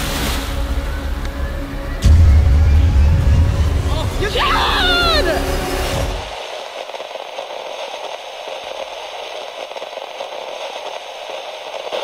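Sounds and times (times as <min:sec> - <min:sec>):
crackling static hiss: 0:03.8 - 0:12.0.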